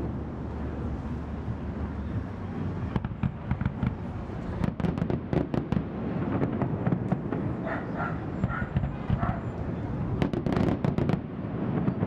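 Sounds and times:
distant fireworks bangs: 2.8s - 12.0s.

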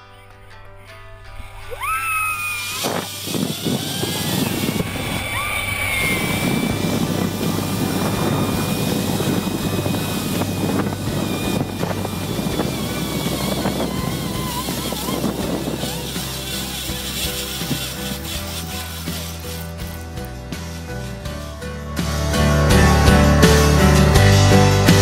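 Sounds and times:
rising whine: 0.0s - 24.4s
wind buffeting microphone: 2.7s - 19.2s.

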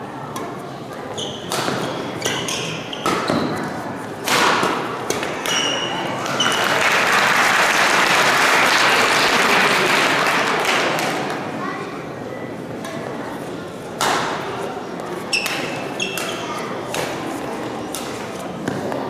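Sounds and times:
shoes squeaking on floor: 1.0s - 3.8s, 5.4s - 6.7s, 15.2s - 16.7s
racket hitting shuttlecock: 1.3s - 6.6s, 14.0s - 14.5s, 15.4s - 19.0s
spectators cheering and applauding: 6.5s - 10.7s.

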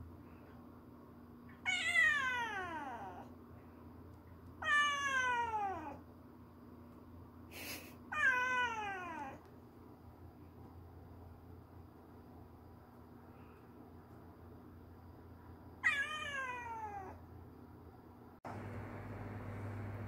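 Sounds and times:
kitten meowing: 15.8s - 17.2s.

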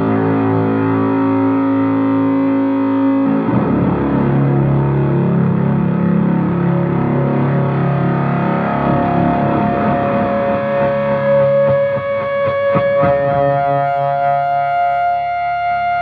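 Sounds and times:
distorted electric guitar drone: 0.0s - 16.0s
sharp picked guitar hits: 8.5s - 15.0s.

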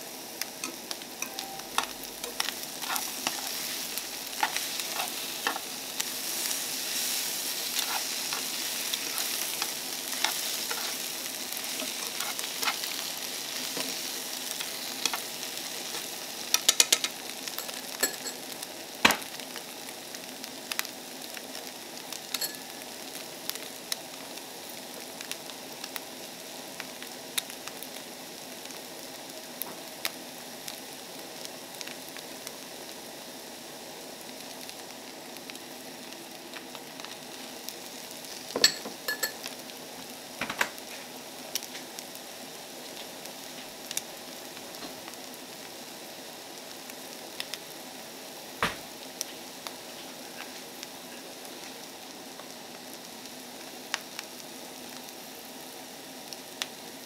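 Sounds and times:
food sizzling in a frying pan: 0.0s - 57.0s
chopsticks scraping a pan: 0.6s - 17.1s.

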